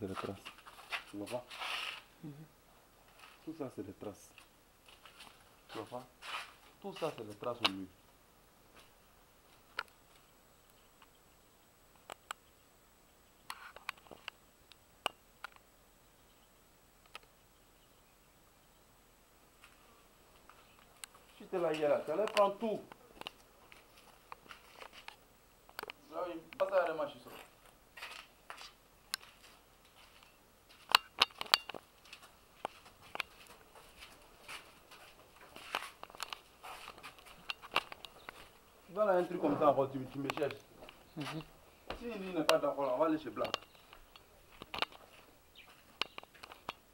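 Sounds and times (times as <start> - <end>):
sharp clicks and clinks: 30.9 - 31.8.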